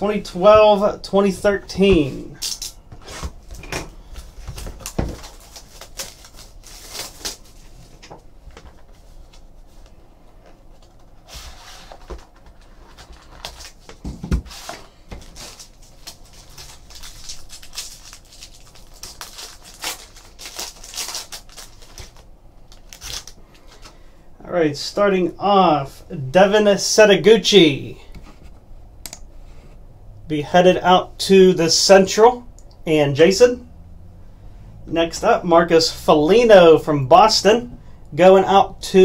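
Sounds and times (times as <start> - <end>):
foil pack crinkling and tearing: 4.2 - 8.0, 15.2 - 24.0.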